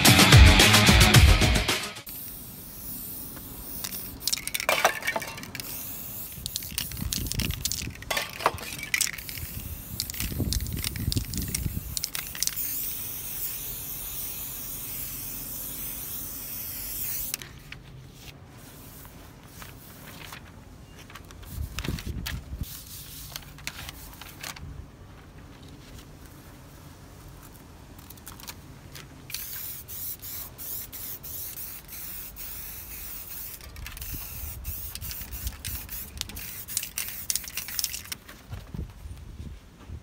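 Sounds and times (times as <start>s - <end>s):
spray paint can hissing: 2.0s - 17.5s, 18.6s - 19.9s, 22.6s - 24.3s, 29.3s - 38.2s
paper rustling: 17.4s - 22.5s.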